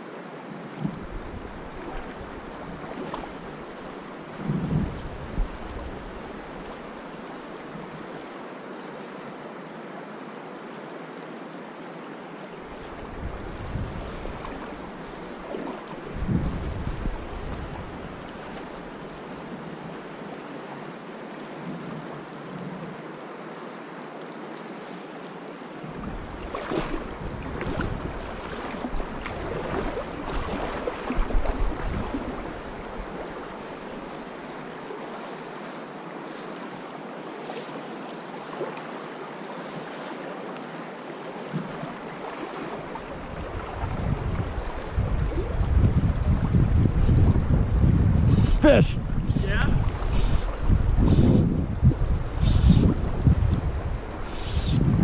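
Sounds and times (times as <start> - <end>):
fast river current rushing: 0.0 - 55.0
wind buffeting microphone: 4.3 - 6.3, 12.9 - 15.2, 16.0 - 18.6, 25.8 - 33.4, 43.1 - 55.0.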